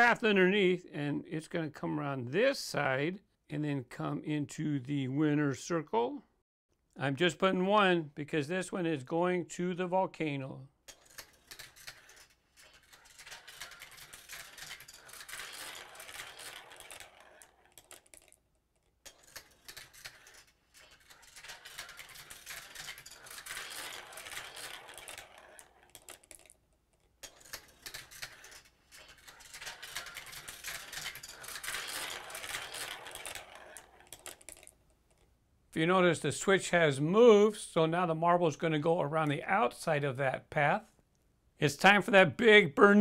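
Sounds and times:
marble rolling down plastic run: 10.9 - 35.2.

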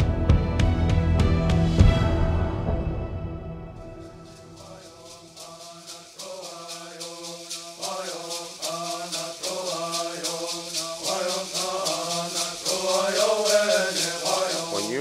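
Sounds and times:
gourd rattles shaken: 4.2 - 15.0
voices chanting: 4.6 - 15.0.

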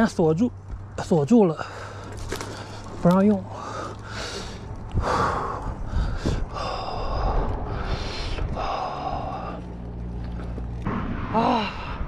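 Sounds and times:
low steady rumble: 0.0 - 12.0
cyclist breathing hard: 1.6 - 10.7.

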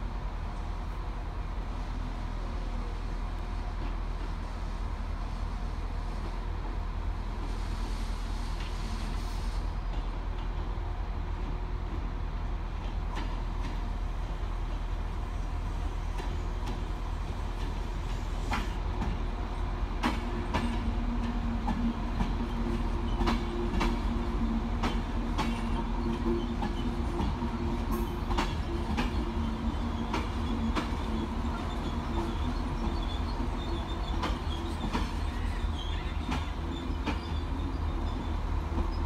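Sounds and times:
diesel locomotive engine rumble: 0.0 - 39.0
train droning hum: 0.0 - 39.0
train wheels clacking over rail joints: 16.0 - 19.3, 20.0 - 39.0.

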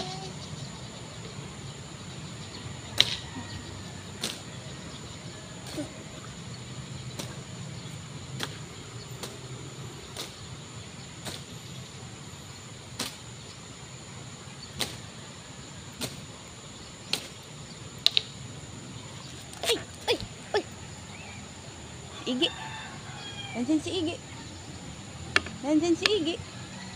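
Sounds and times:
sharp clicks: 18.0 - 18.4.

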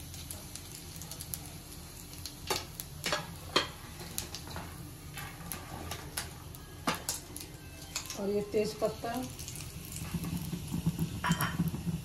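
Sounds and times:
spices crackling in hot oil: 0.0 - 12.0.

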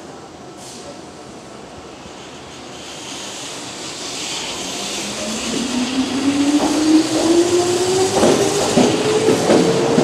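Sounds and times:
electric train motor whine: 4.4 - 9.9
train wheel knocks on rails: 8.1 - 10.0.

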